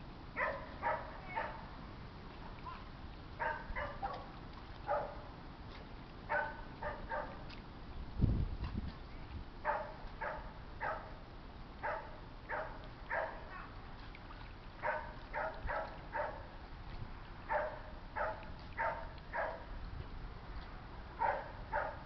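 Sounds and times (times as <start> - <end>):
low steady rumble: 0.0 - 22.0
dog barking: 0.4 - 1.6, 3.4 - 4.3, 4.9 - 5.2, 6.3 - 7.4, 9.6 - 11.1, 11.8 - 13.8, 14.8 - 16.5, 17.5 - 19.6, 21.2 - 22.0.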